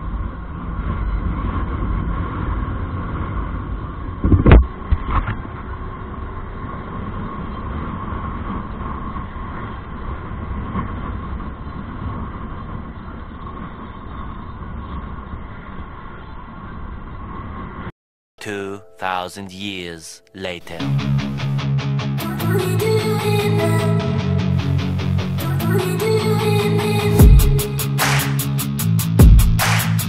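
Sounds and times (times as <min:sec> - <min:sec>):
motorbike riding rumble: 0:00.0 - 0:17.9
steady tone: 0:18.4 - 0:28.4.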